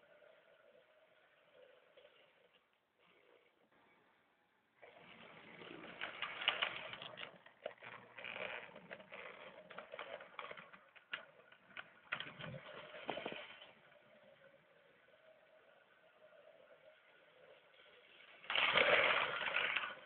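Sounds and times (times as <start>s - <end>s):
toy train rattling on track: 4.8s - 20.0s.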